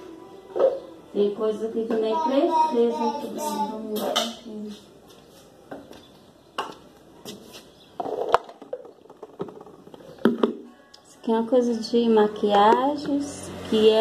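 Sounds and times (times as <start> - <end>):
plastic bottles knocking: 8.0 - 10.7.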